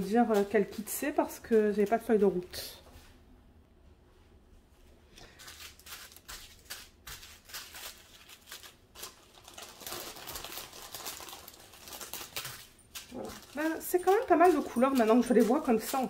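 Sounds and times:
plastic bags crinkling: 5.1 - 16.0.

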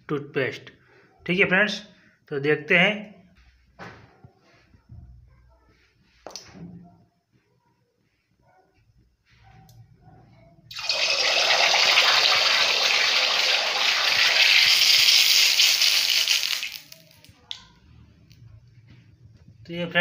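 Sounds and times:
hot oil sizzling in a wok: 10.7 - 17.2.

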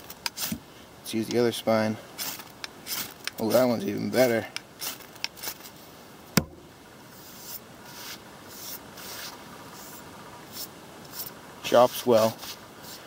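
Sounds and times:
ferro rod scraping steel: 2.2 - 5.8
sharp knock: 6.4 - 6.6.

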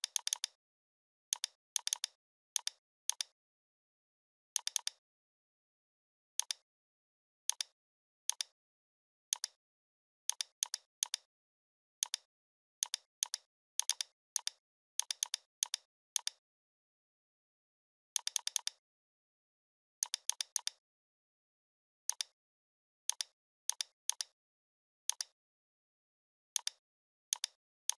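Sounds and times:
computer mouse and keyboard clicks: 12.0 - 16.4.

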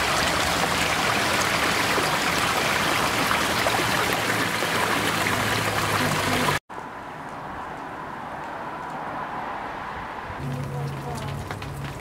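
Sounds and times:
stream flowing over rocks: 0.0 - 6.6.

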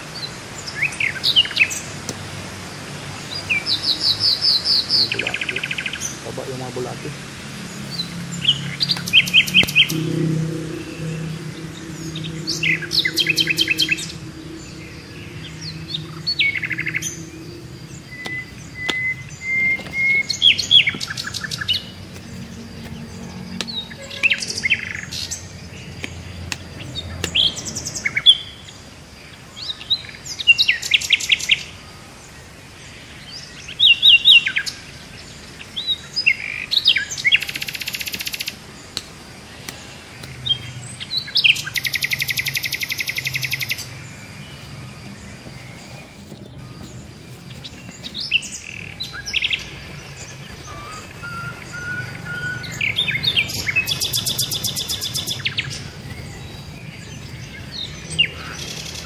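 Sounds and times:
birds chirping and trilling: 0.0 - 59.0
thin steady whistle: 9.6 - 17.0.

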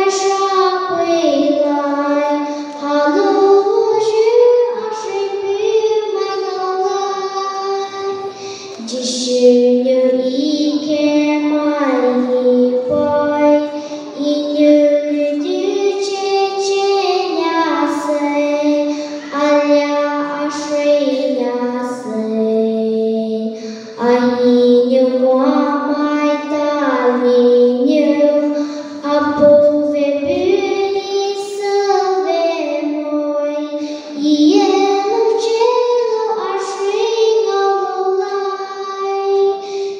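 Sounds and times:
girl singing into a microphone: 0.0 - 39.9
girl breathing: 2.4 - 2.8, 7.9 - 8.8, 13.7 - 14.2, 18.8 - 19.4, 23.5 - 24.0, 28.4 - 29.0, 33.7 - 34.2, 39.5 - 39.9.

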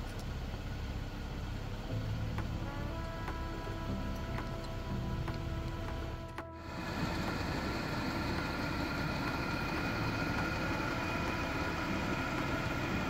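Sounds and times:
air heater humming: 0.0 - 13.0
fan whine: 0.0 - 13.0.

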